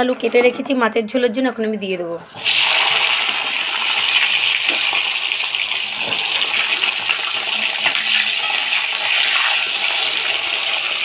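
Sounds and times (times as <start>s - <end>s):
potatoes sizzling in hot oil: 2.4s - 11.0s.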